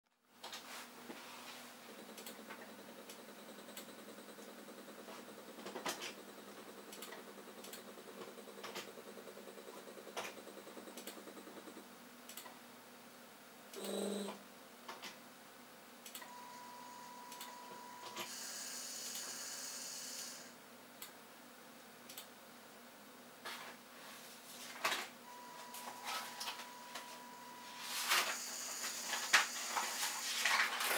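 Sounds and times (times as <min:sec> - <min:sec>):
stepper motor ticking hum: 0:01.9 - 0:12.6
sharp clicks: 0:22.1 - 0:22.3.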